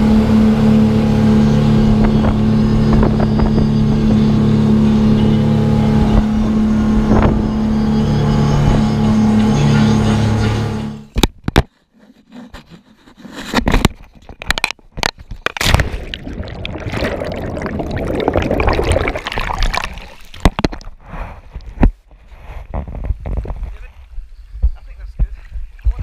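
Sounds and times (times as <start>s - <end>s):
rushing air bubbles: 15.6s - 21.3s
muffled underwater water noise: 15.6s - 22.0s.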